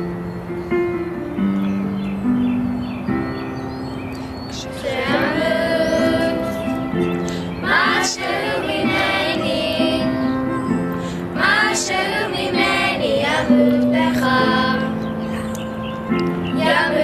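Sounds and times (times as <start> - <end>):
sustained keyboard chords: 0.0 - 17.0
young voices singing: 4.5 - 17.0.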